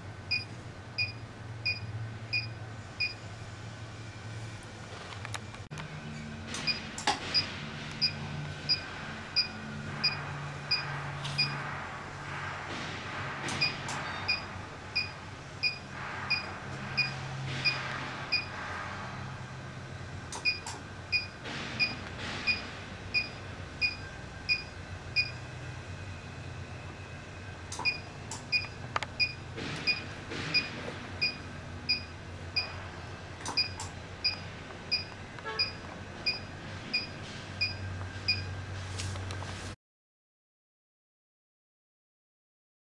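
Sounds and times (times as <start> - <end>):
short high machine beeps: 33.5 - 38.5.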